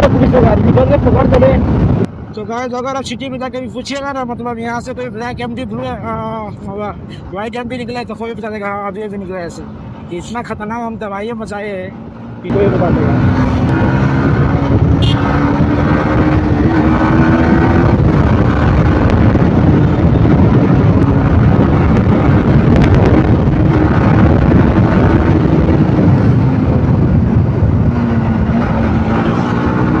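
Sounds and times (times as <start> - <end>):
motorcycle engine cruising: 11.9 - 30.0.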